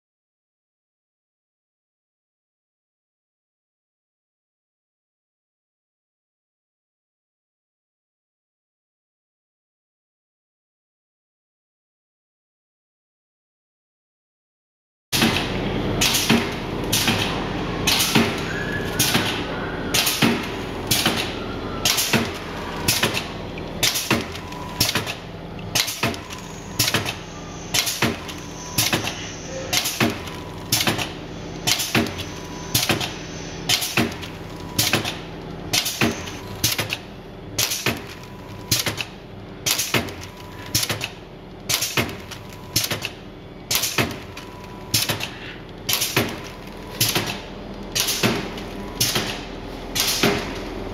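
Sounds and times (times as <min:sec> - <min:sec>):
sharp mechanical knocks: 0:15.2 - 0:18.4, 0:20.0 - 0:27.2, 0:27.8 - 0:50.7
steady machine hum: 0:15.2 - 0:50.9.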